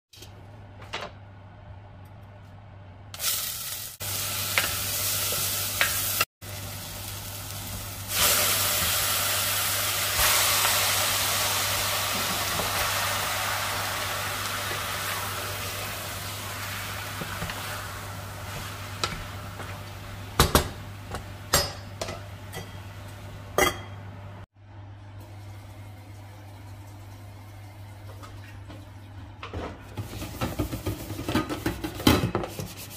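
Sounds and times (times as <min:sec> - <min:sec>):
food sizzling in hot oil: 0:03.2 - 0:20.5.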